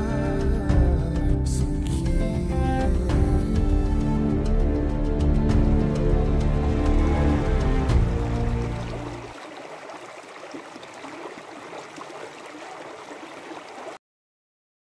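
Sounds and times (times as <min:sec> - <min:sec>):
background music: 0:00.0 - 0:09.3
stream rippling over stones: 0:05.8 - 0:14.0.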